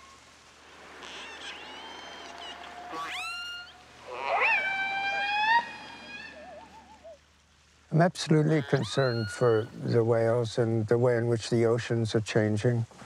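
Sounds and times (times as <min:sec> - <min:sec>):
killer whale calls: 0:00.0 - 0:07.2, 0:08.4 - 0:09.8.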